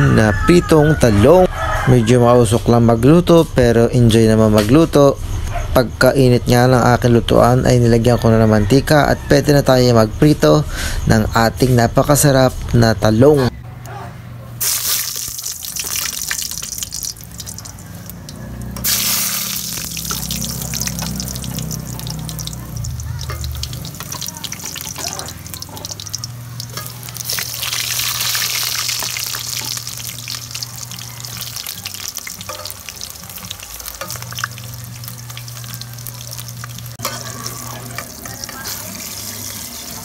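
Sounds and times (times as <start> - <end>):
eggplant sizzling in hot oil: 14.6 - 40.0.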